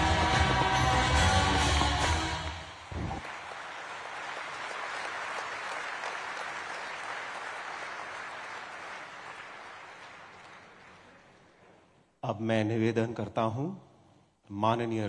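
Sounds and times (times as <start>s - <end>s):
music: 0.0s - 3.2s
audience applauding: 1.3s - 11.9s.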